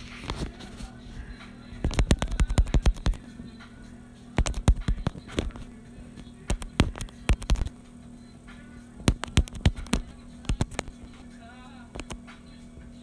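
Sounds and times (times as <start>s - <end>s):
faint steady low hum: 0.0s - 13.0s
sharp taps and knocks: 1.9s - 3.2s, 4.4s - 5.6s, 9.1s - 11.0s.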